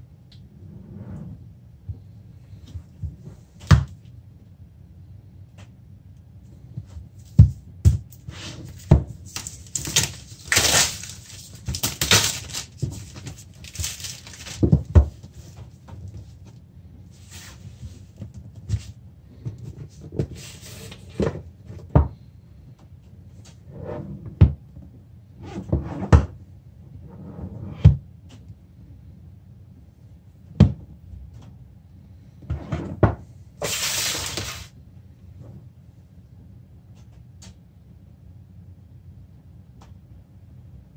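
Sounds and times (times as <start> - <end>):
plastic shrink-wrap crinkling and tearing: 8.8 - 14.8, 33.6 - 34.7.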